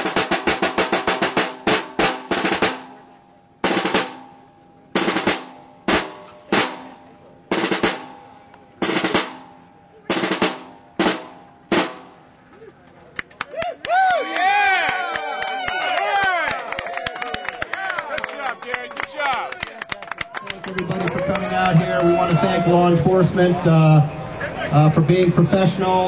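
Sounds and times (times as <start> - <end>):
snare drum rolls: 0.0 - 4.4, 5.0 - 12.3.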